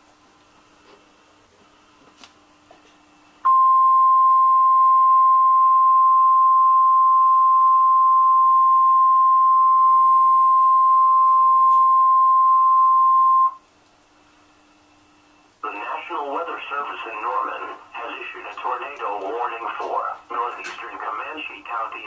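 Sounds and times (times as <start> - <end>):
steady alarm tone from radio speaker: 3.5 - 13.6.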